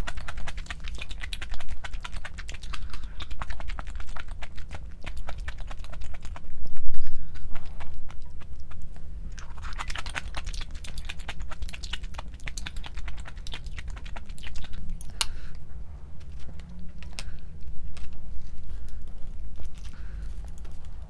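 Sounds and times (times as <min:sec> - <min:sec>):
low steady hum: 0:00.0 - 0:21.0.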